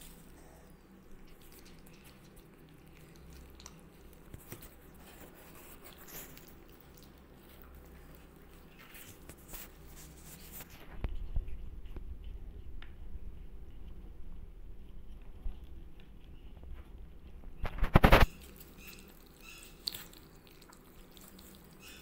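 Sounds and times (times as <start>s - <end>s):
low steady hum: 0.0s - 22.0s
kittens rustling in cardboard box: 4.2s - 12.2s, 16.4s - 21.6s.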